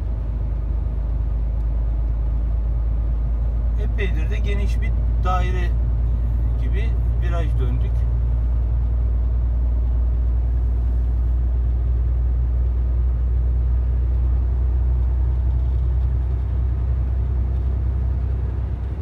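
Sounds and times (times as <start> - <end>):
truck engine and tyres droning: 0.0 - 19.0.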